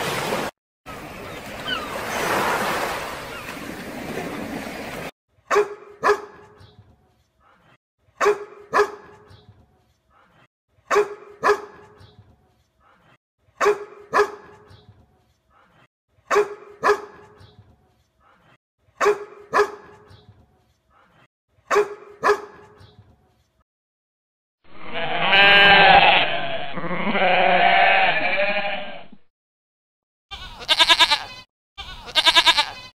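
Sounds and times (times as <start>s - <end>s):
dog barking: 5.5s - 6.6s, 7.4s - 9.3s, 10.1s - 12.0s, 12.8s - 14.7s, 15.5s - 17.4s, 18.2s - 20.1s, 20.9s - 22.8s
goats bleating: 24.9s - 29.1s, 30.3s - 32.9s.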